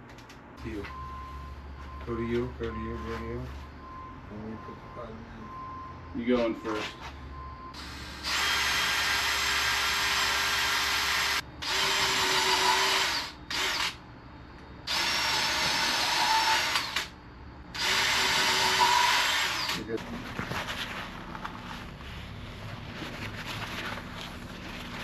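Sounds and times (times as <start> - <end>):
power drill running: 7.8 - 14.0, 14.9 - 17.1, 17.7 - 19.8.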